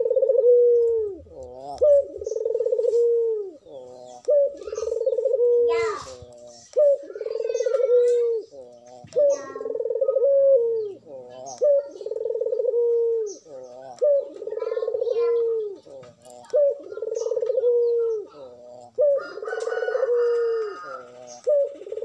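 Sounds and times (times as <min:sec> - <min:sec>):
dove cooing: 0:00.0 - 0:22.0
small birds chirping: 0:00.0 - 0:22.0.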